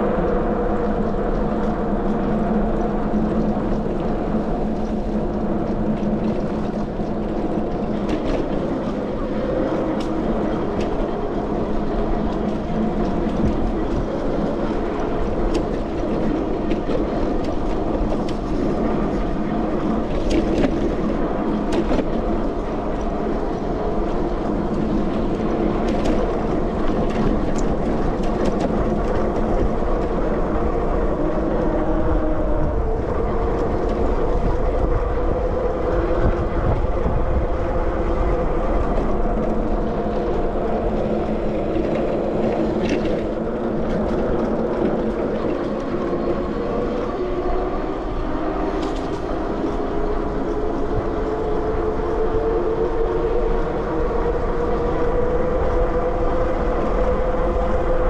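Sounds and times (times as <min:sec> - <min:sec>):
electric bike rolling hum: 0:00.0 - 0:58.0.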